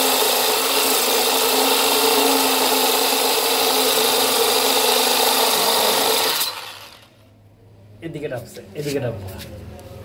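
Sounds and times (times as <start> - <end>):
drill grinding through stone: 0.0 - 7.1.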